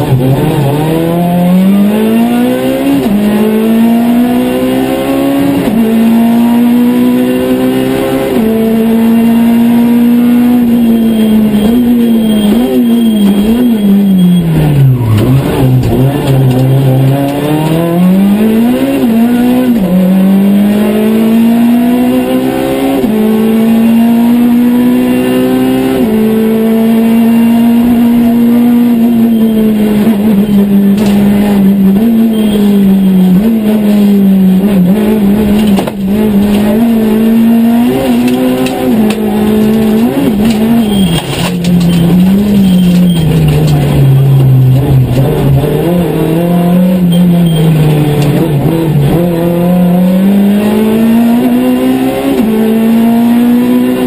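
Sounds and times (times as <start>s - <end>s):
rally car engine revving: 0.0s - 54.0s.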